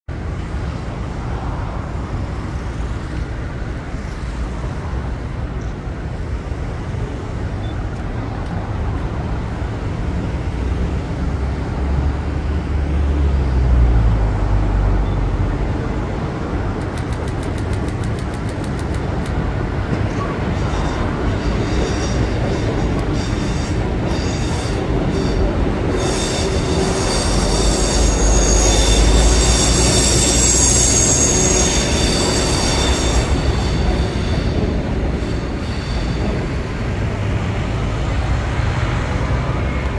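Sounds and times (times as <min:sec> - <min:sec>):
urban traffic noise: 0:00.0 - 0:39.9
electric train rumbling: 0:00.1 - 0:39.9
fast light clicks: 0:16.8 - 0:19.4.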